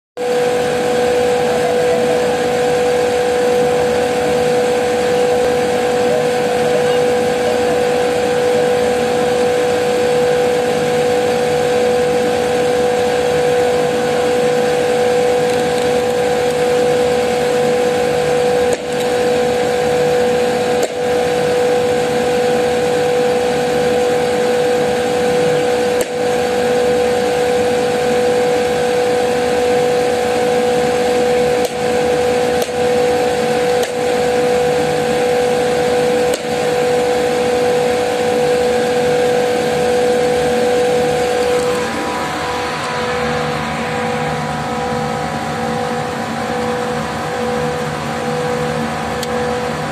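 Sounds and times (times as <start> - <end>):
chiller machine drone with whine: 0.2 - 49.9.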